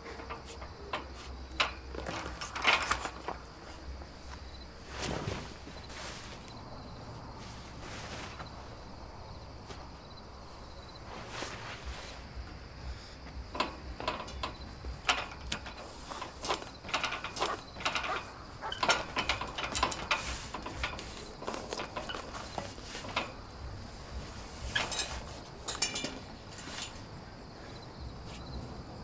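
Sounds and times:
sharp metallic knocks and clicks: 0.0 - 3.4, 13.3 - 23.8, 24.7 - 27.0
metal gate rattling and clanking: 0.0 - 4.4, 13.3 - 28.2.

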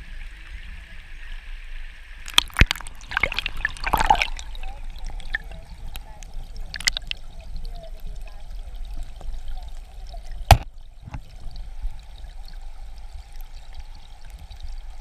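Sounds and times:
underwater river rumble: 0.0 - 15.0
sharp knock: 10.5 - 10.7.

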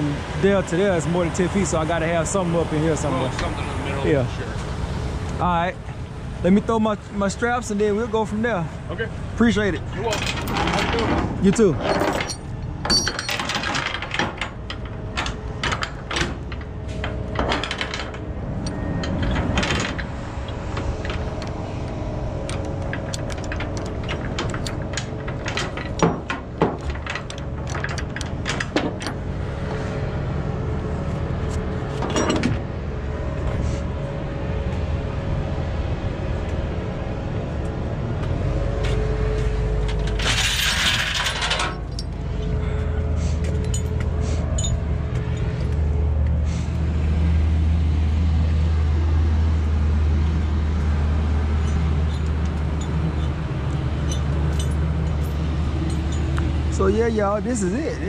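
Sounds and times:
metal hooks clinking on trailer deck: 10.0 - 21.5, 22.4 - 29.2, 31.9 - 32.6, 39.8 - 42.5, 43.4 - 45.8, 51.6 - 57.1.

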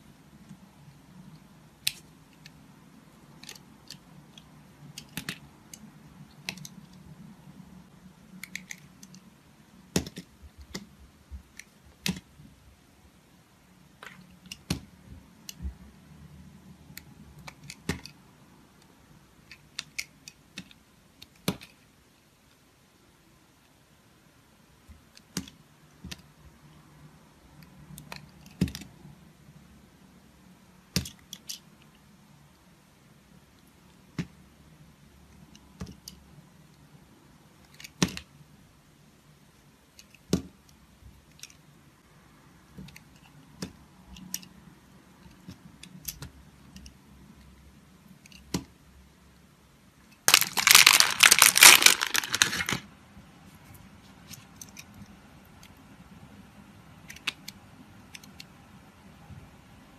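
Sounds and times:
crackling crunch: 50.3 - 52.8.

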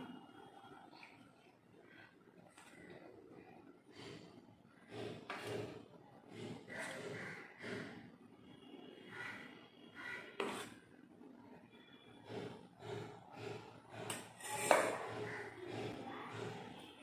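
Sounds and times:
metal spoon scraping a metal plate: 4.9 - 8.0, 10.2 - 10.8, 12.2 - 17.0.

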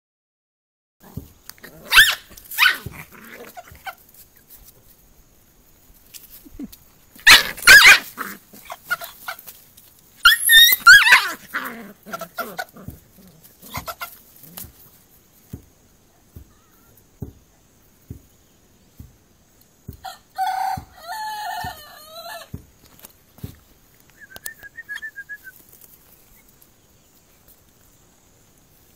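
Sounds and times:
puppy yelping: 1.8 - 4.0, 7.2 - 9.4, 10.2 - 12.9.

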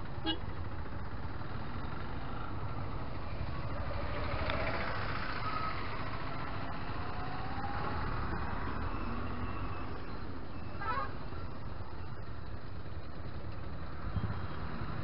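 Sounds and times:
motorcycle engine idling: 0.0 - 3.6, 10.4 - 14.5
road traffic: 0.0 - 15.0.

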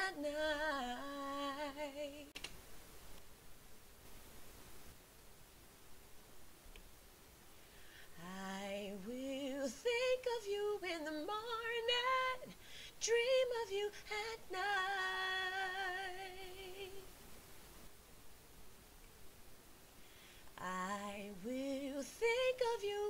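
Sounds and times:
woman singing unaccompanied: 0.0 - 2.4, 8.1 - 17.1, 20.5 - 23.0.

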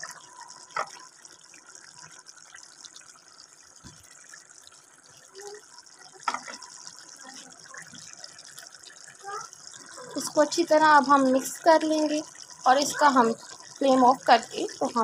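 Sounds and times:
pot hissing on stove: 5.3 - 15.0.

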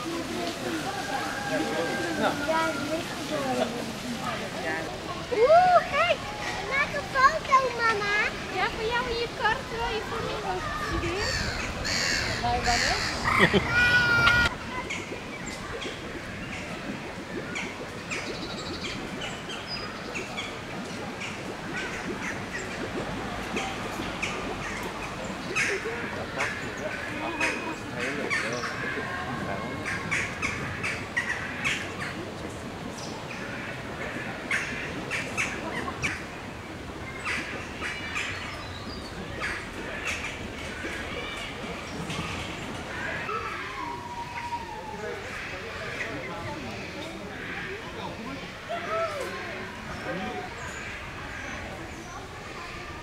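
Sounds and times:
outdoor background noise: 0.0 - 53.0
birds squawking: 11.0 - 15.0.

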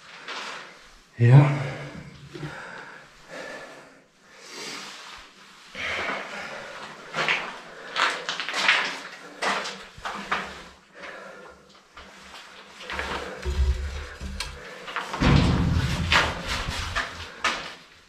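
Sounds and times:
irregular scrapes and scuffs: 12.1 - 17.8.

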